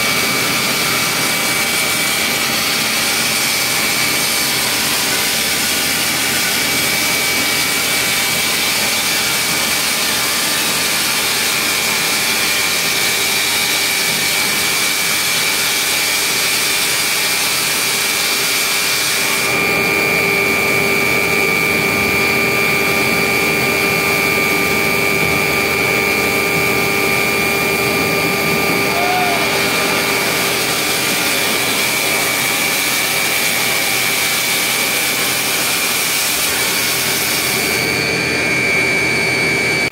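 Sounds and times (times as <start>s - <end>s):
high whine: 19.3s - 39.9s.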